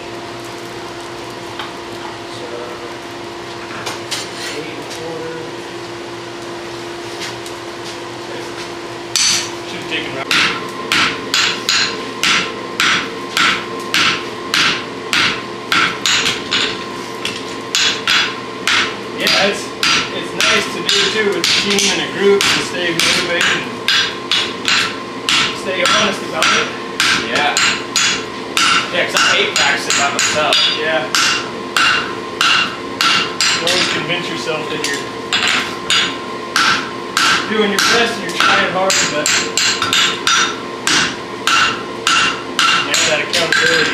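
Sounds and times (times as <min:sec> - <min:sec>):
steady hum: 0:00.0 - 0:43.9
hammer striking horseshoe on anvil: 0:09.1 - 0:09.5, 0:10.3 - 0:34.0, 0:34.9 - 0:43.9.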